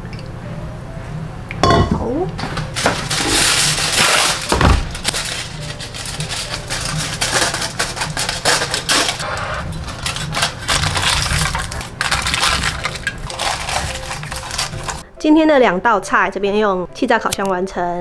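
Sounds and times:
aluminium foil crinkling and tearing: 2.5s - 15.1s.

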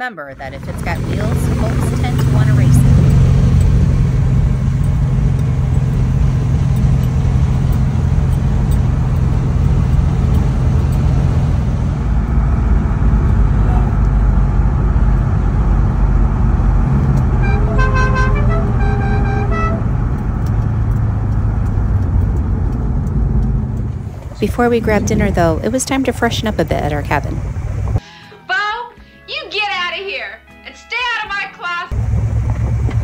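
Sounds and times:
car engine drone and road noise: 0.3s - 28.0s, 31.9s - 33.0s
musical car horn: 17.2s - 20.2s.

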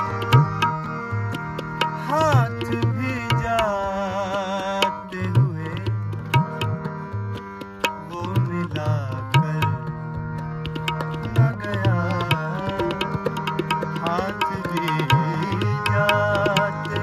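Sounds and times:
harmonium chords and melody: 0.0s - 17.0s
tabla strokes: 0.0s - 17.0s
wavering wordless vocal: 2.0s - 6.7s, 8.0s - 10.1s, 11.0s - 17.0s.

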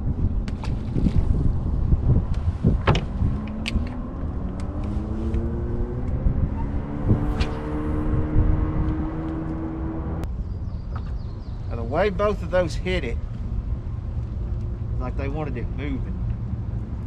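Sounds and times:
wind rumble on microphone: 0.0s - 17.0s
motor humming rising pitch: 3.2s - 10.3s.

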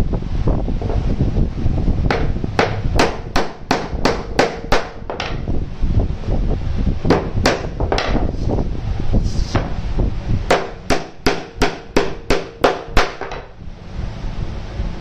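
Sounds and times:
hammer driving nail into wood: 2.1s - 5.4s, 7.1s - 8.3s, 10.5s - 13.5s.

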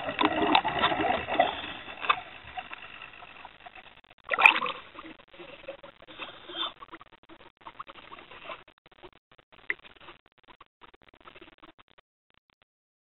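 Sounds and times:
underwater clicks and splashes: 0.0s - 5.7s.

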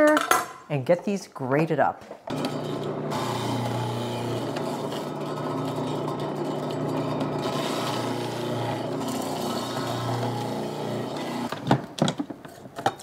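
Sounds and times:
food processor motor hum: 2.3s - 11.6s.

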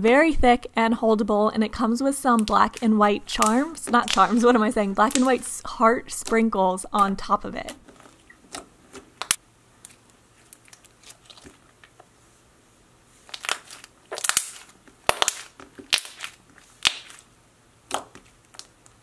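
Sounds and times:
slime popping and clicking: 5.0s - 5.4s, 13.3s - 17.2s.

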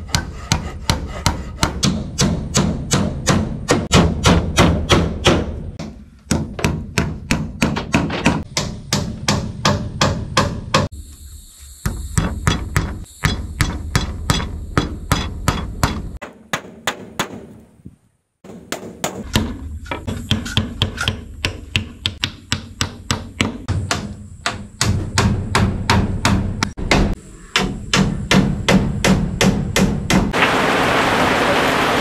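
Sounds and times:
rapid hammer blows: 0.0s - 10.9s.

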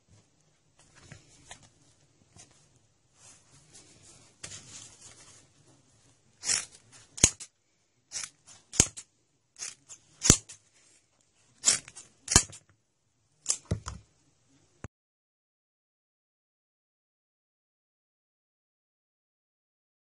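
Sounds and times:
scissors snipping leather: 6.4s - 7.5s, 11.6s - 12.6s.

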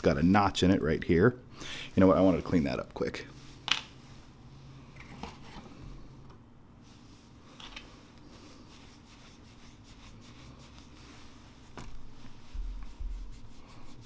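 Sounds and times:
tissue rubbing on metal: 2.0s - 4.6s, 6.8s - 14.0s.

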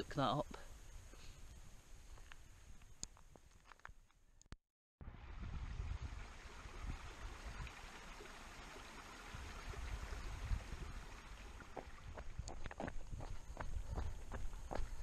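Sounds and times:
stream running over rocks: 5.2s - 13.7s
footsteps: 11.8s - 15.0s.

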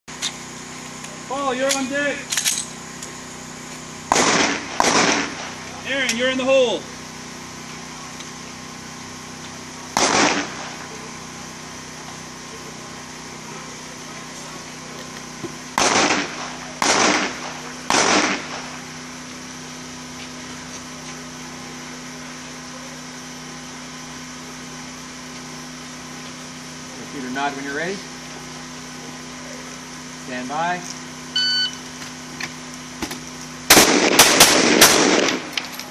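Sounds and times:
pistol shots echoing: 4.1s - 5.6s, 10.0s - 10.7s, 15.8s - 18.7s, 33.7s - 35.6s.

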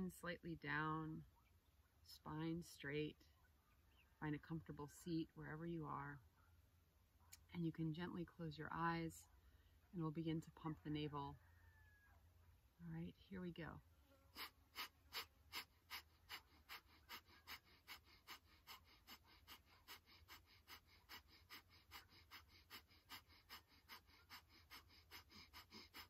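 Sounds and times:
rapid forceful nasal exhales: 14.3s - 26.0s.

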